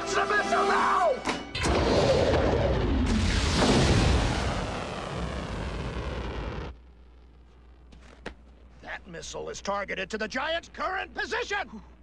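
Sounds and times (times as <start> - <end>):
rocket roar: 1.6 - 6.8.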